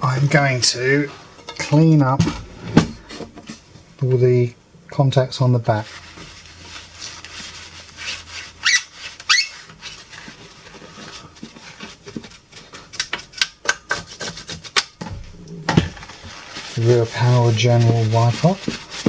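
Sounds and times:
paper towel scrubbing metal: 0:05.7 - 0:12.8, 0:14.0 - 0:19.0
short high squeaks: 0:08.6 - 0:09.6.

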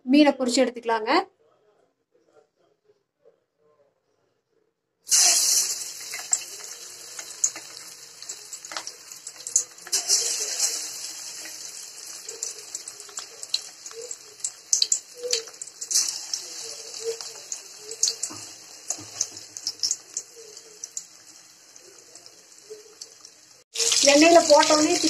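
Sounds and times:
oil crackles and pops: 0:05.1 - 0:21.2
fish sizzling in hot oil: 0:05.1 - 0:25.0.

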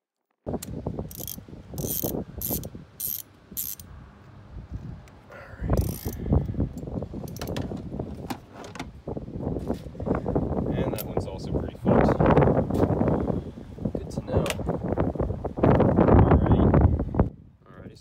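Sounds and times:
socket ratchet clicking: 0:01.1 - 0:03.9, 0:05.8 - 0:06.2.

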